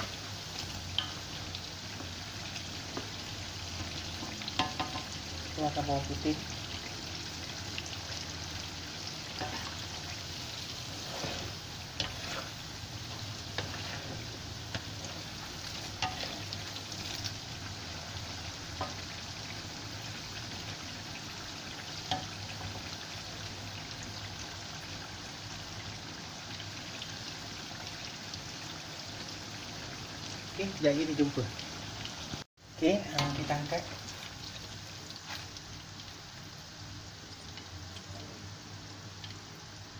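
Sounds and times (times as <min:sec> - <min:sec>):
garlic sizzling in oil: 0:00.0 - 0:39.9.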